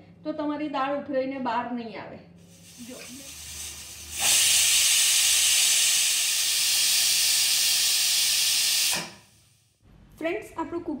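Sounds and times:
pressure cooker steam hiss: 2.4s - 9.7s.

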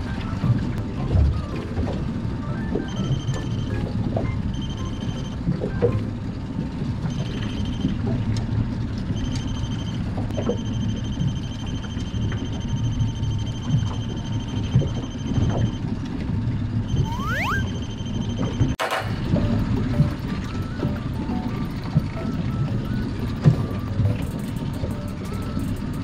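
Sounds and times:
wind and water rumble: 0.0s - 26.0s
high electronic beeping tone: 16.9s - 18.4s, 19.4s - 26.0s.

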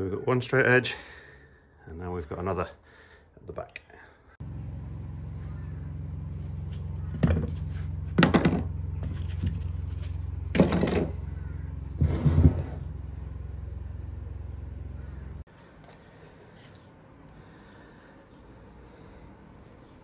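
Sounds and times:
low electric hum: 4.4s - 20.0s
loud noisy knocks: 8.2s - 8.7s, 10.5s - 11.2s.

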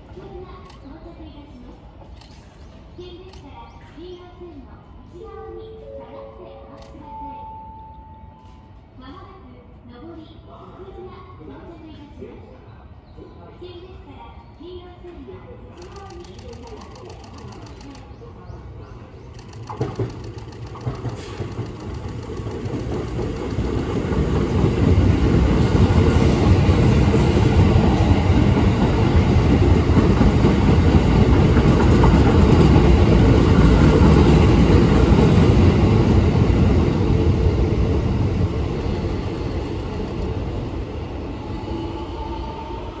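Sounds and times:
train passing at speed: 0.0s - 43.0s
wheel and rail noise: 15.8s - 43.0s.

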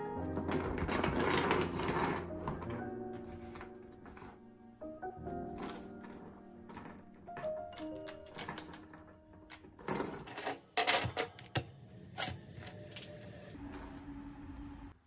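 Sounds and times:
metal chain rattling: 0.4s - 3.0s, 5.4s - 11.4s
wallet set on wooden table: 0.4s - 4.4s.

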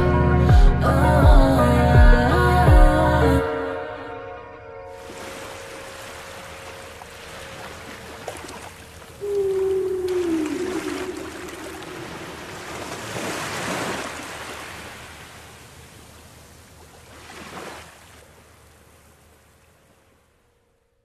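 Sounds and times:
ocean waves with reverb: 0.0s - 21.0s
faint held tone: 9.1s - 12.7s.

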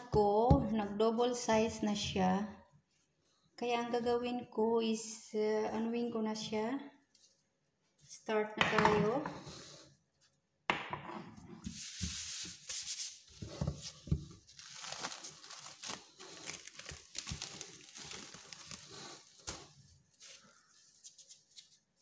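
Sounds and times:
plastic wrap crinkling: 12.7s - 22.0s.

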